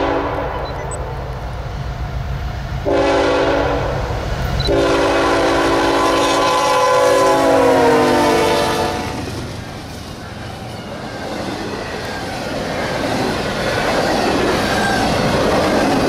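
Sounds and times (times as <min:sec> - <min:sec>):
locomotive air horn blowing: 0:00.0 - 0:00.6, 0:02.9 - 0:04.0, 0:04.6 - 0:09.2
locomotive engine rumble: 0:00.0 - 0:16.0.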